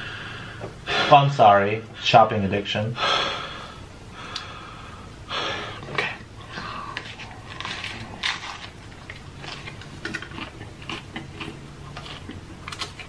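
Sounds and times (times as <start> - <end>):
breathing through nose: 3.0 - 7.0
crunching taco shell: 7.0 - 13.0.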